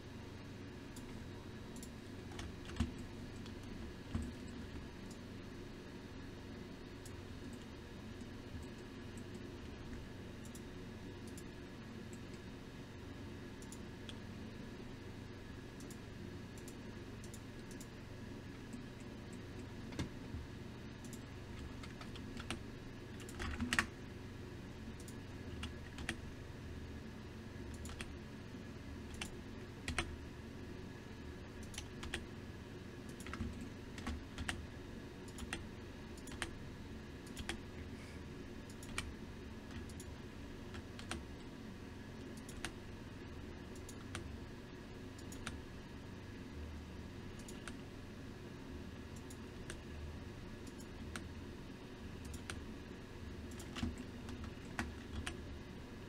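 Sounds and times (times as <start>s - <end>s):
steady low hum: 0.0s - 56.0s
keyboard and mouse clicks: 0.9s - 5.2s, 7.0s - 11.5s, 13.6s - 14.2s, 15.8s - 18.0s, 18.7s - 20.2s, 21.0s - 23.9s, 25.0s - 26.2s, 27.7s - 28.2s, 29.1s - 30.1s, 31.6s - 32.2s, 33.0s - 34.6s, 35.2s - 35.6s, 36.2s - 36.5s, 37.2s - 37.6s, 38.6s - 39.1s, 39.7s - 41.5s, 42.2s - 42.8s, 43.7s - 44.3s, 45.2s - 45.6s, 47.4s - 47.8s, 49.1s - 49.9s, 50.6s - 51.3s, 52.2s - 52.6s, 53.5s - 55.4s.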